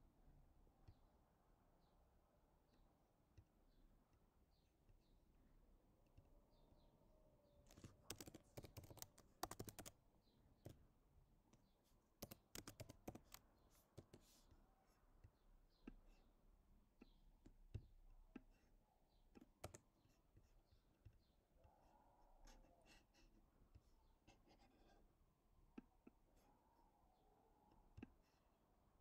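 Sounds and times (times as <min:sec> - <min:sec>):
keyboard typing: 0:07.7 - 0:10.0, 0:12.2 - 0:14.3, 0:19.3 - 0:20.1.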